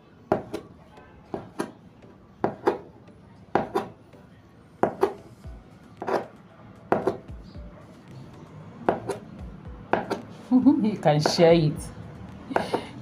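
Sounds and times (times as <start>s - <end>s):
knife chopping on cutting board: 0.3s - 0.7s, 1.3s - 1.8s, 2.4s - 2.9s, 3.6s - 3.9s, 4.8s - 5.2s, 6.0s - 6.3s, 6.9s - 7.2s, 8.9s - 9.2s, 9.9s - 10.3s, 12.5s - 12.9s.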